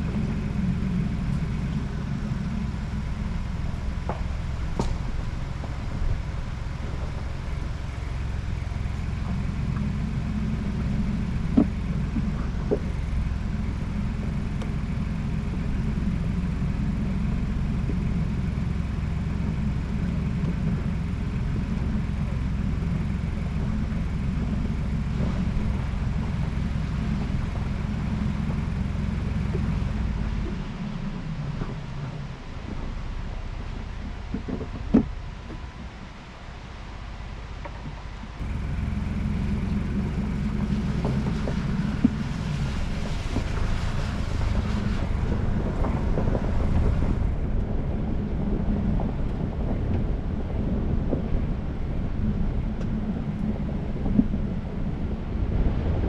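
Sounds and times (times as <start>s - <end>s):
engine and road noise rumble: 0.0s - 56.0s.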